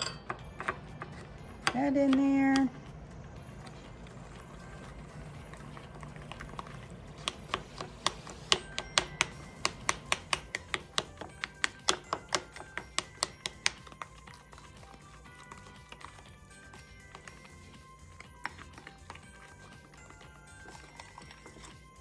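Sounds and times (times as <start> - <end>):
spoon clinking against glass bowl: 0.0 - 1.0.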